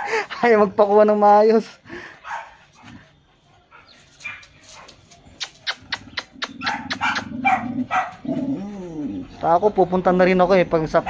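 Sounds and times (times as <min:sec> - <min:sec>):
dog whining: 0:05.3 - 0:09.4.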